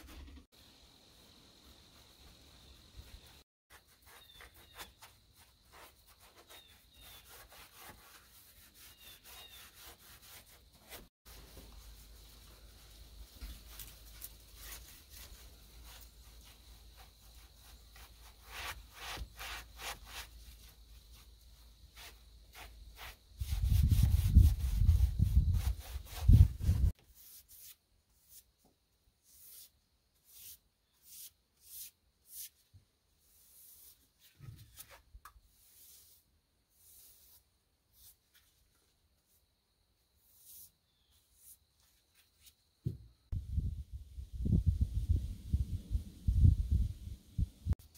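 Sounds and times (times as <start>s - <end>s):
brush scrubbing wood: 3.0s - 28.4s.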